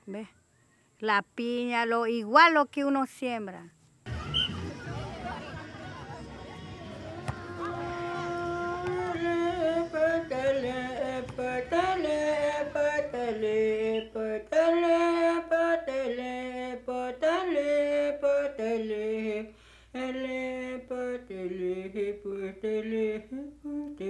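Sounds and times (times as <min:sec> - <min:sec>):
woman singing slow melody: 0:07.5 - 0:24.0.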